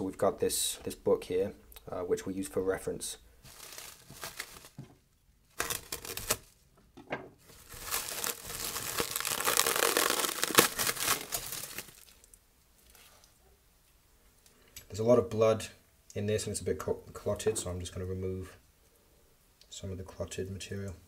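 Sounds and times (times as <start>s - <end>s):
cling film crinkling: 3.4s - 4.8s, 5.5s - 6.6s, 7.5s - 13.0s.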